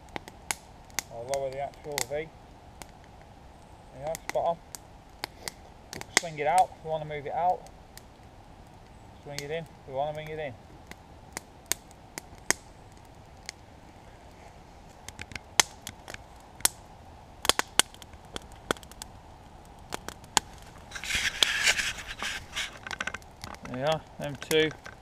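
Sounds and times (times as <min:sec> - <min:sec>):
campfire crackling and popping: 0:00.0 - 0:25.0
rustling noise: 0:13.7 - 0:16.4, 0:20.4 - 0:23.8.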